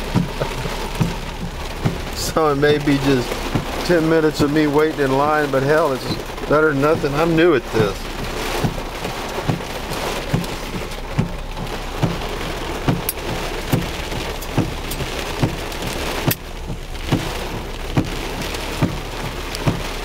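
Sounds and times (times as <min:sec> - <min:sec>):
heavy rain drumming on car roof: 0:00.0 - 0:20.0
windshield wipers sweeping: 0:00.0 - 0:20.0.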